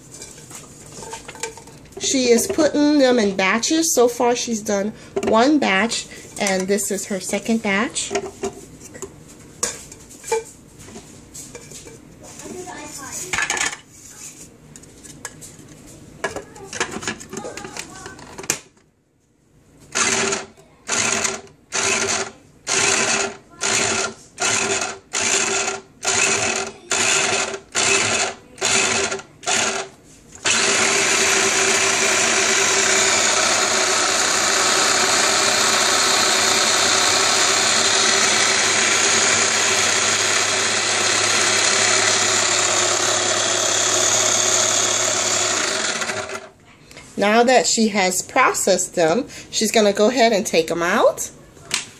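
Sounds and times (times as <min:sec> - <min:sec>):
food chopper motor pulsing: 0:19.9 - 0:46.5.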